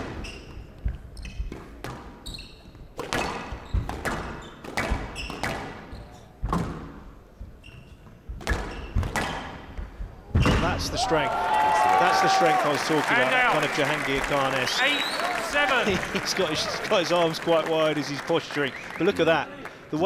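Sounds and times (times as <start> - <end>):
shoe squeaks on court floor: 0.0 - 6.4, 7.6 - 9.5
squash ball knocks: 3.0 - 5.8, 8.3 - 10.8.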